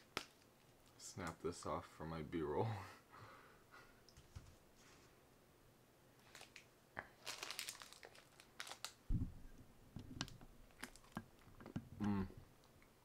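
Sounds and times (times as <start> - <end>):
small crunches: 6.2 - 9.0
plastic wrapper crinkling: 6.2 - 9.1, 10.2 - 11.5.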